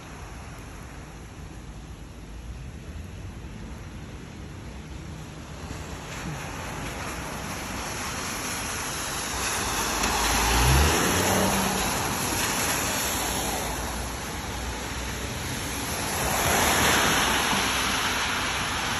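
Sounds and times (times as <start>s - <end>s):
tyres hissing on wet asphalt: 0.0s - 18.9s
passing car engine rumbling: 9.1s - 14.0s.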